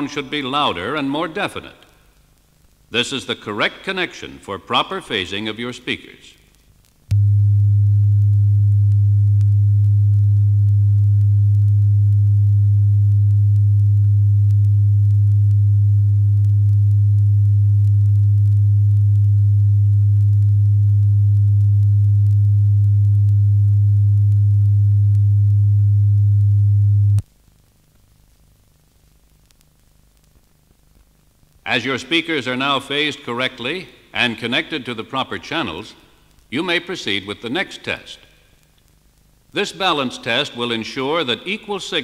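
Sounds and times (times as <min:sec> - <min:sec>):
faint tape hiss: 0:00.0 - 0:42.0
steady low test tone: 0:07.1 - 0:27.2.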